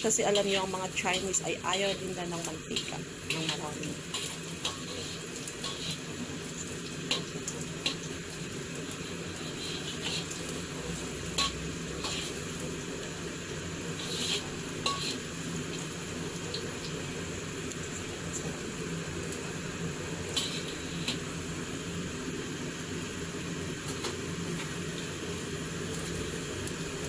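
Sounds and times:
utensil scraping in pan: 0.0s - 13.1s, 13.8s - 16.6s, 20.3s - 21.3s
frying sizzle: 0.0s - 27.0s.

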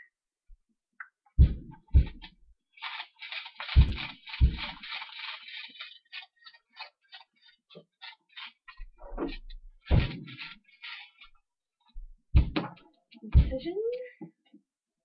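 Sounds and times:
small objects rubbing and rustling: 2.0s - 12.0s.

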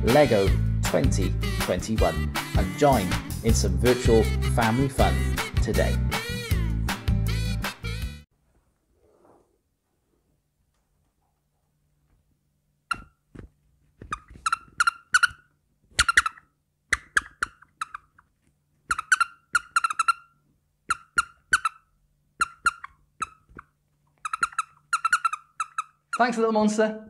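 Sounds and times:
high-pitched chirping gibberish voice: 18.9s - 20.3s, 22.4s - 23.5s, 24.2s - 26.4s.

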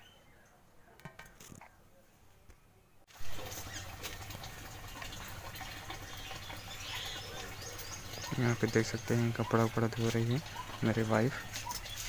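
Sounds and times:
water splashing and dripping: 3.1s - 12.0s.

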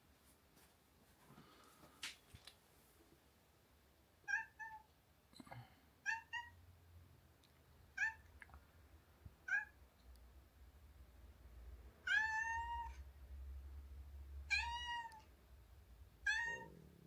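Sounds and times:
cat meowing: 4.2s - 4.9s, 6.0s - 6.6s, 8.0s - 8.3s, 9.4s - 9.8s, 12.0s - 13.0s, 14.5s - 15.3s, 16.2s - 16.9s.

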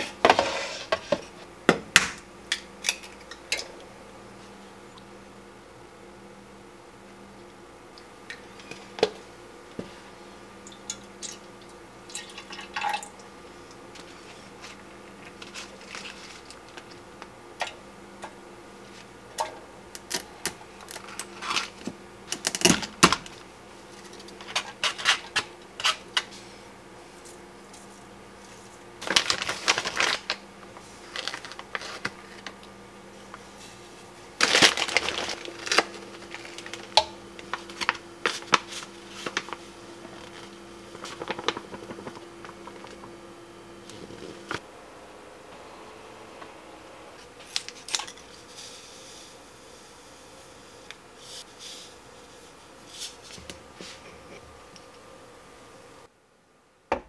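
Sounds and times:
rustling and scraping: 0.0s - 1.5s, 13.9s - 16.9s, 23.8s - 43.1s, 51.2s - 54.6s
faint steady hum: 0.0s - 57.0s.

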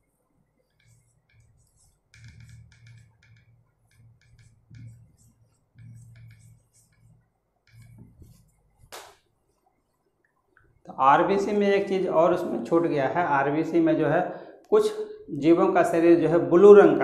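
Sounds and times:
pen scratching while writing: 0.0s - 8.9s.

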